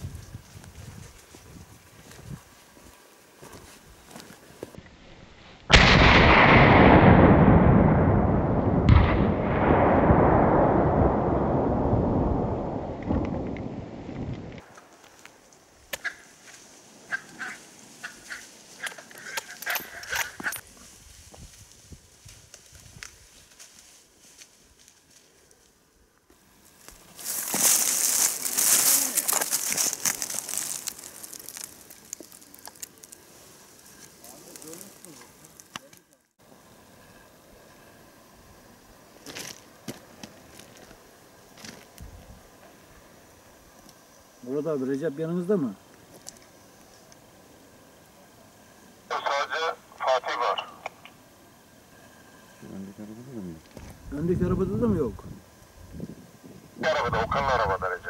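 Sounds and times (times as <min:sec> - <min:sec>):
gunshots echoing across valley: 0:05.7 - 0:13.7
dry leaves crunching and rustling: 0:26.7 - 0:35.7.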